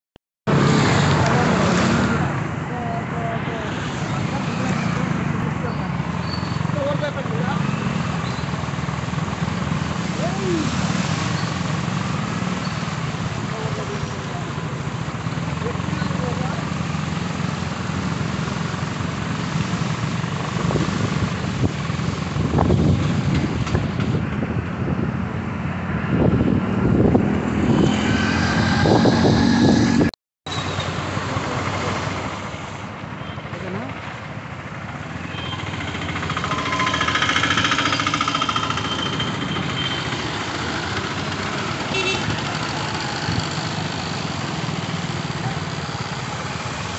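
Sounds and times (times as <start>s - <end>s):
tyres hissing on a flooded road: 3.2s - 23.3s, 30.5s - 34.1s, 35.2s - 46.9s
wind buffeting the microphone: 20.5s - 25.3s, 26.0s - 28.0s
motorcycle engine running: 33.6s - 46.9s.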